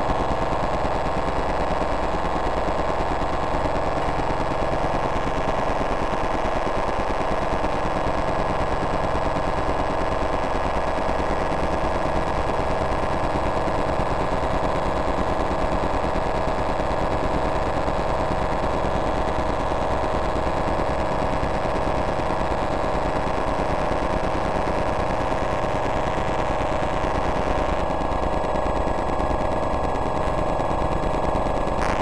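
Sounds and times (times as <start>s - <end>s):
rattle of rapid electronic pulses: 0.0s - 32.0s
steady electronic tones: 31.8s - 32.0s.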